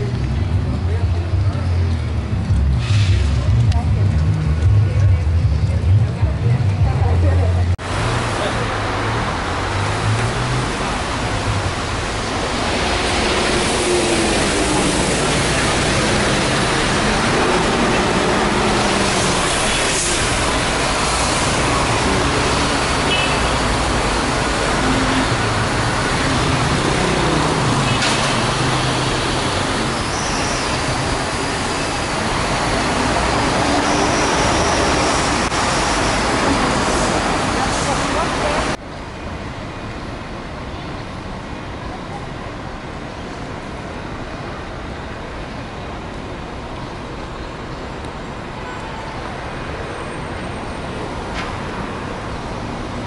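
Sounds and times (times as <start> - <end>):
cars and buses passing: 0.0 - 53.0
tyres hissing on wet road: 2.6 - 3.8, 7.8 - 38.8.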